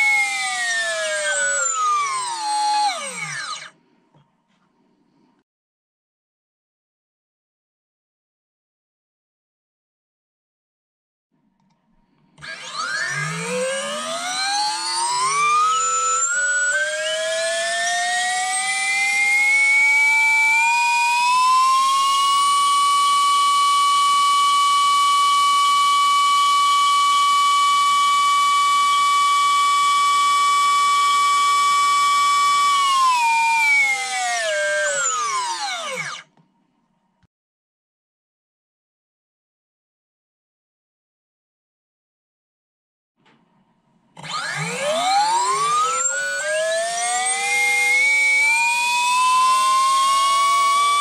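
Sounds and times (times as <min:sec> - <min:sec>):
electric motor whine: 0:00.0 - 0:03.7, 0:12.4 - 0:36.3, 0:44.2 - 0:51.0.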